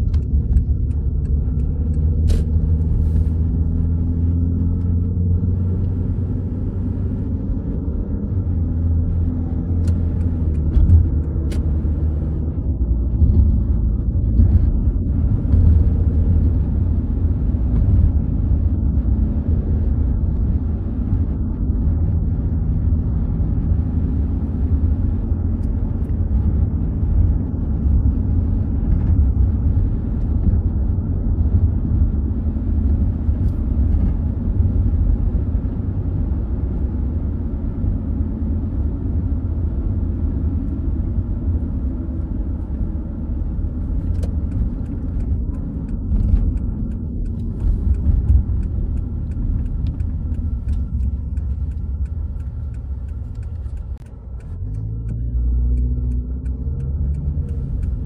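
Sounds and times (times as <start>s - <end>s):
car engine and road rumble: 0.0s - 58.0s
faint ticks: 44.1s - 58.0s.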